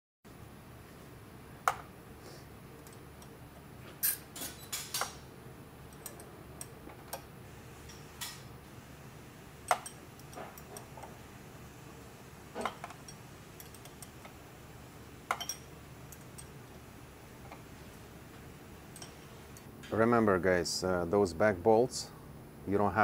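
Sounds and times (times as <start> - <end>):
metal tools clinking: 12.6 - 14.2, 15.3 - 16.6, 18.9 - 19.7.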